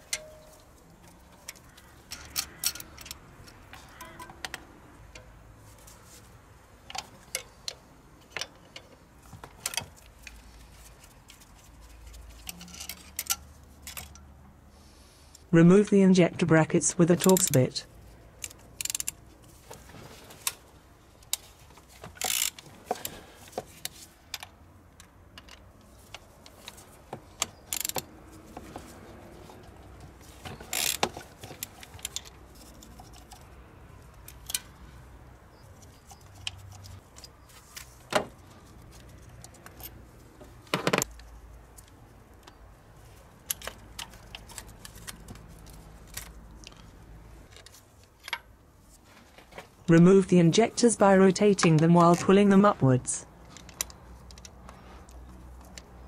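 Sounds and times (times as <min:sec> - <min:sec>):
ratchet wrench clicking: 0:18.4 - 0:19.2, 0:22.2 - 0:23.0, 0:27.4 - 0:28.1, 0:30.6 - 0:33.4.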